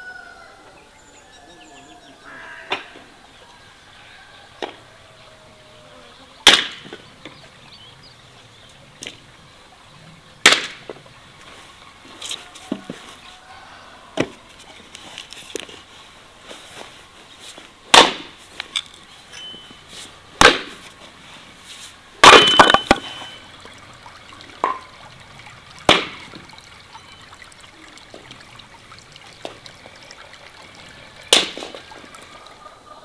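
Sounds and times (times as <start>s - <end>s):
wooden logs knocking together: 6.5s - 7.4s, 10.4s - 11.1s, 14.2s - 15.8s, 17.9s - 19.6s, 20.4s - 21.0s, 22.2s - 23.8s, 24.6s - 25.0s, 25.8s - 26.5s, 31.3s - 32.3s.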